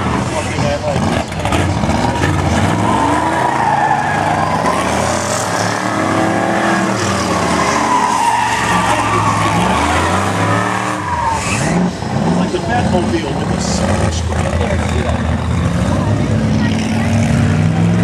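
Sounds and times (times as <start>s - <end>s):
car engine revving: 0.0s - 18.0s
tyres squealing: 1.6s - 13.5s.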